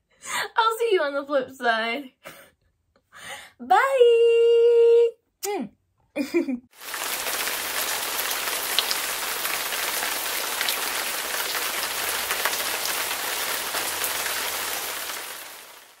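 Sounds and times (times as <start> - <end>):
rain-like hiss: 6.8 - 16.0.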